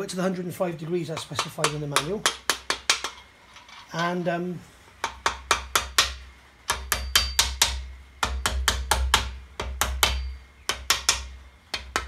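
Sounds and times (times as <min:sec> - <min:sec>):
hammer tapping metal: 0:01.1 - 0:03.3, 0:05.0 - 0:12.0.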